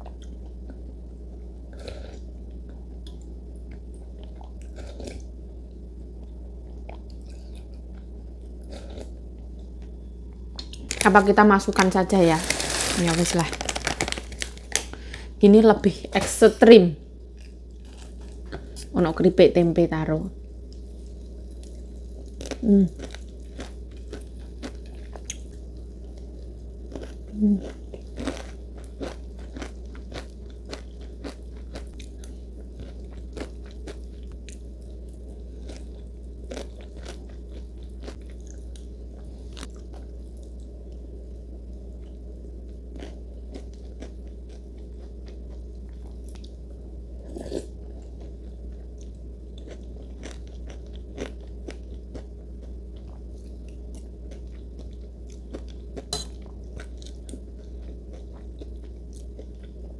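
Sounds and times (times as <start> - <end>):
steady low hum: 0.0 - 59.9
chips being crunched: 12.3 - 14.9.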